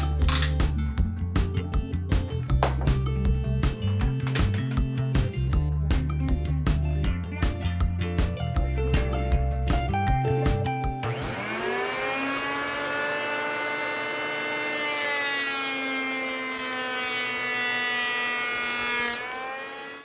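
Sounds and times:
electric planer motor whine: 11.0 - 20.0
planer blades shaving wood: 11.0 - 20.0.

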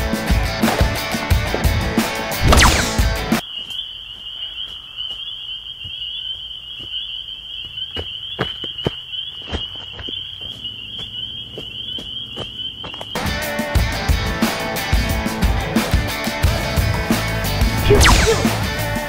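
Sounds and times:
crickets chirring: 3.4 - 13.4.

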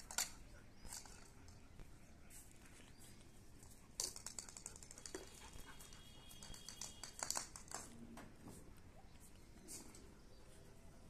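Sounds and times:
dog claws clicking on concrete: 0.0 - 1.6, 3.6 - 8.0.

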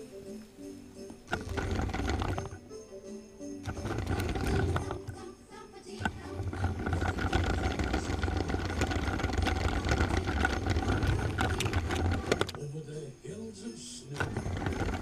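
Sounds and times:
wheels clicking over track joints: 1.2 - 2.6, 3.6 - 5.3, 5.9 - 12.7, 14.1 - 15.0
electric motor hum and whine: 6.0 - 12.6.

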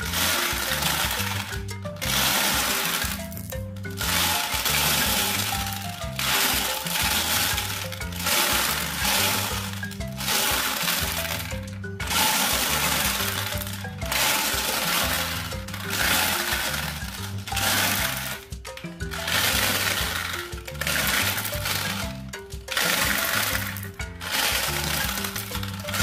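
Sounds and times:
background music with bass line: 0.0 - 26.0
marbles rattling in plastic drum: 0.0 - 26.0.

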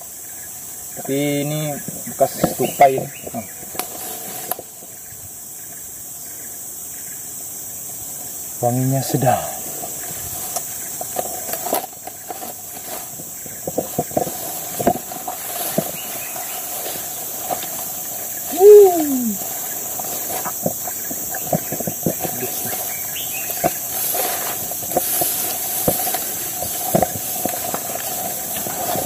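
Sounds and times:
high insect drone: 0.0 - 29.0
twigs crackling: 9.8 - 29.0
footsteps through tall grass: 9.9 - 18.5, 19.1 - 29.0.

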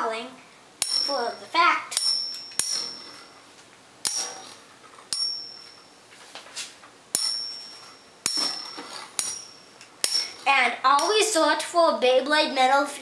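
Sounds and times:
spinning tops clashing metallic clinks: 0.8 - 3.4, 4.0 - 5.8.

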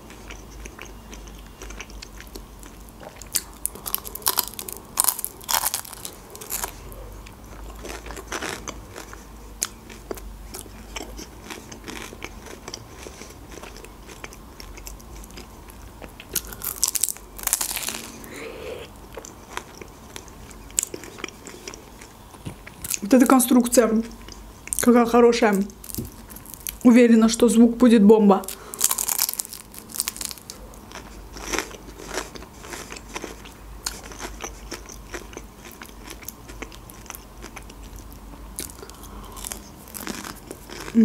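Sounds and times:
chewing: 0.0 - 23.1, 28.5 - 41.0
crunchy pastry bites: 3.0 - 6.9, 16.1 - 18.4, 25.7 - 26.8, 28.4 - 41.0.

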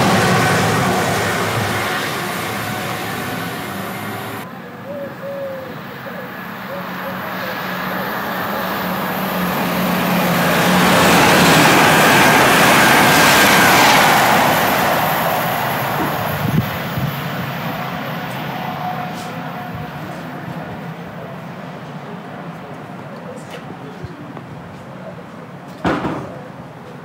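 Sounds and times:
train passing at speed: 0.0 - 27.0
brief knock: 25.8 - 26.4.

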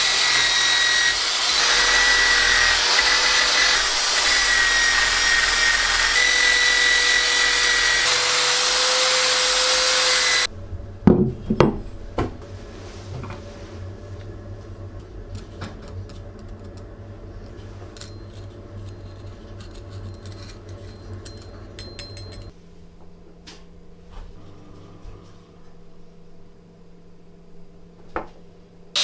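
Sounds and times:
low steady hum: 10.4 - 29.0.

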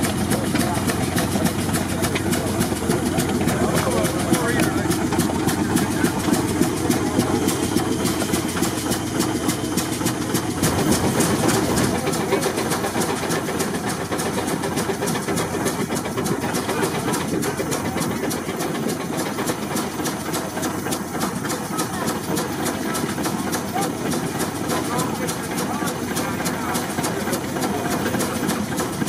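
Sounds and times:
steam engine chuffing: 0.0 - 29.0.

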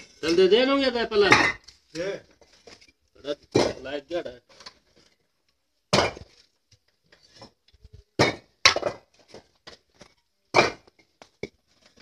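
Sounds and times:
bricks and tools knocking: 7.3 - 11.6.

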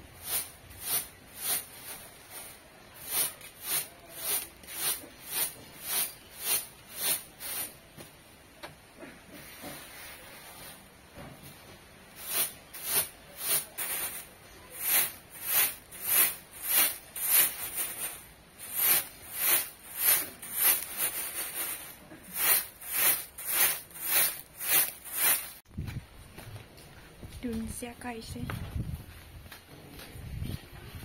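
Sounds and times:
grains rattling on woven tray: 0.3 - 7.6, 12.2 - 25.6.

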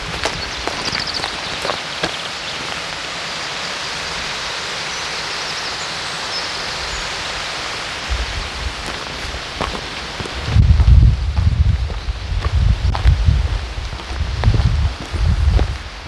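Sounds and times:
wind buffeting microphone: 0.0 - 2.1, 8.0 - 16.0
stream rushing: 0.0 - 16.0
faint high bird chirps: 0.4 - 2.6.

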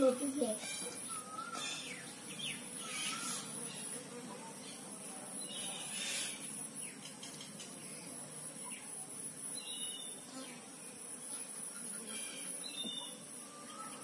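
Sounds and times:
bird chirps: 0.4 - 4.0, 9.6 - 10.5, 11.3 - 14.0
high-pitched insect drone: 8.3 - 14.0.

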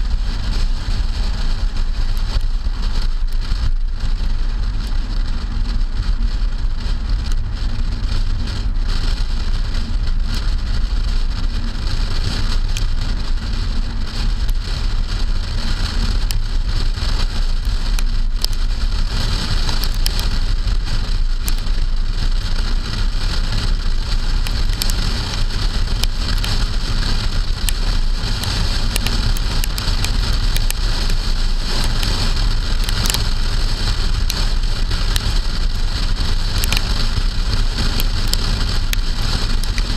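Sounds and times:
car road noise rumble: 0.0 - 39.9
wind rushing over camera: 0.0 - 39.9
raindrops ticking on camera housing: 15.6 - 39.9.

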